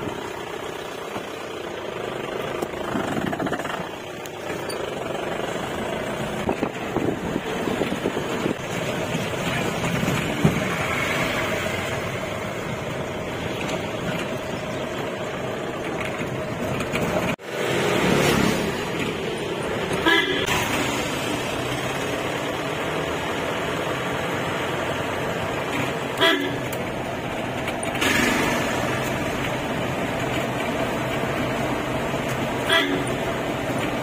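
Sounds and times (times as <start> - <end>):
vehicle engine and road noise: 0.0 - 34.0
vehicle horn toot: 20.0 - 20.6, 26.2 - 26.8, 32.6 - 33.2.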